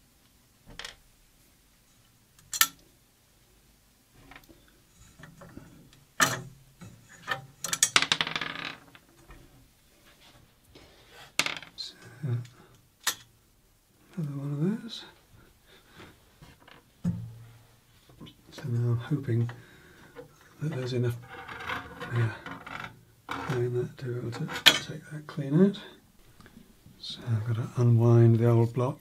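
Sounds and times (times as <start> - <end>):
small metal hardware clinking: 2.4 - 2.8.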